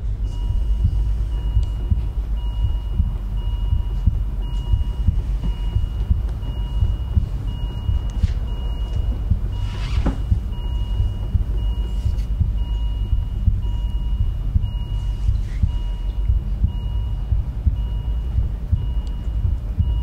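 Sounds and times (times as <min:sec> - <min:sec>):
low rumbling throb: 0:00.0 - 0:20.0
patient monitor beeping: 0:00.2 - 0:20.0.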